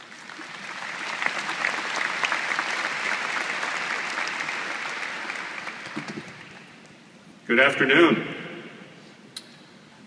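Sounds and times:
large audience applauding: 0.0s - 6.8s.

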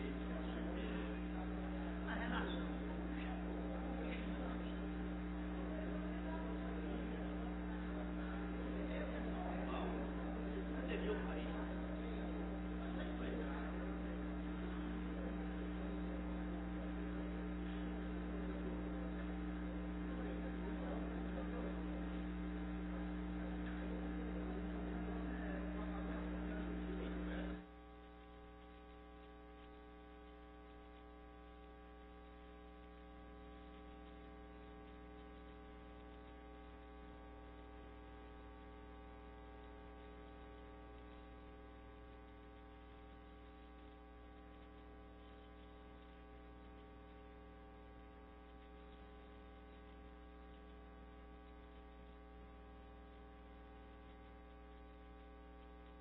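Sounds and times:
electrical mains hum: 0.0s - 56.0s
loud hum: 0.0s - 56.0s.

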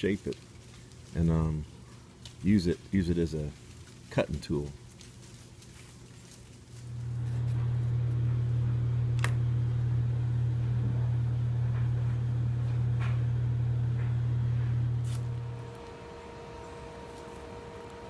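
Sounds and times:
faint background noise: 0.0s - 6.9s
low mechanical hum: 0.0s - 18.0s.

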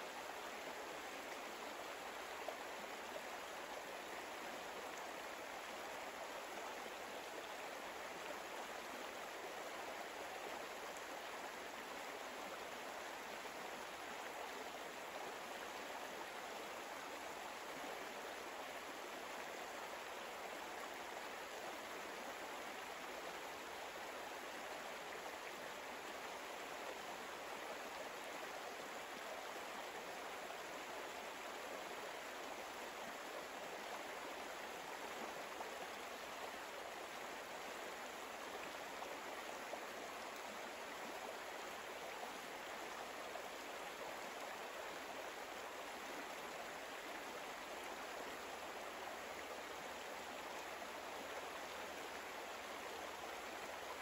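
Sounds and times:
stream water flowing: 0.0s - 54.0s.

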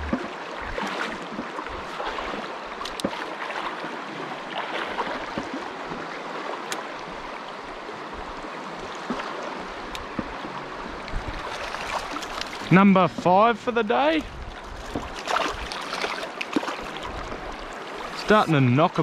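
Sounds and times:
river water rushing: 0.0s - 19.0s.

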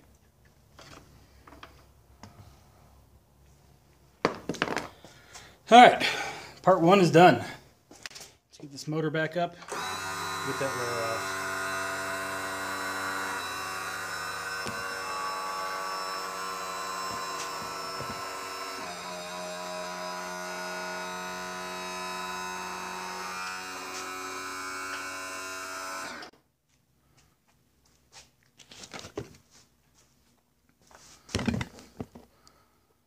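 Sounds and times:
electric tilt motor humming: 9.7s - 26.3s.

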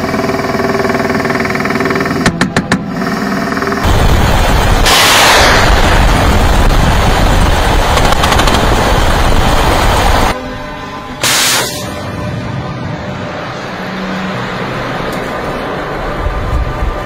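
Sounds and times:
helicopter noise: 0.0s - 17.0s
rapid automatic gunfire: 7.8s - 9.0s.

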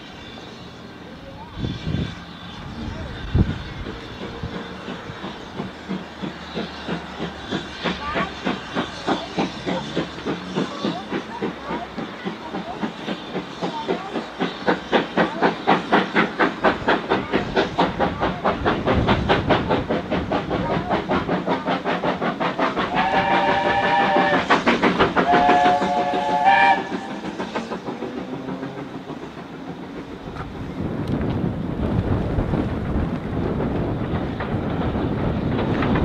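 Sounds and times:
steam locomotive exhaust beats: 0.0s - 36.0s
steam locomotive chime whistle: 22.9s - 27.5s.

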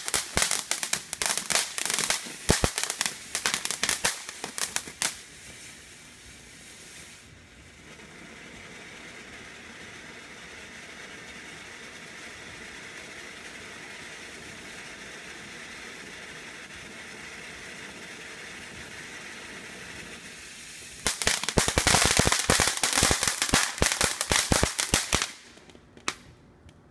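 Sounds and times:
fireworks fountain hissing: 0.0s - 26.2s
fireworks rapid crackling: 0.0s - 26.4s.

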